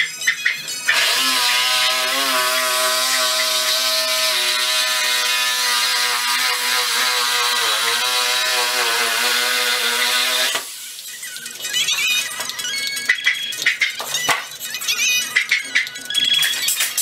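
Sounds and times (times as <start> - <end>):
reciprocating saw cutting: 0.9 - 10.7.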